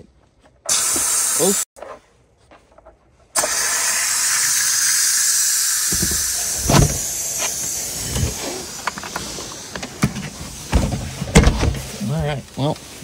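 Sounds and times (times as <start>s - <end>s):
pressure cooker valve hissing steam: 0.7s - 1.7s, 3.4s - 9.9s
handling knocks and thumps: 5.9s - 7.2s, 8.0s - 12.0s.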